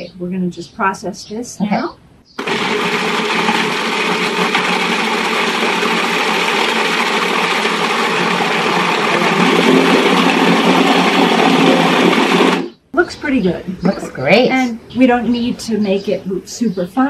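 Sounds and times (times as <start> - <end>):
food processor running: 2.4 - 12.8.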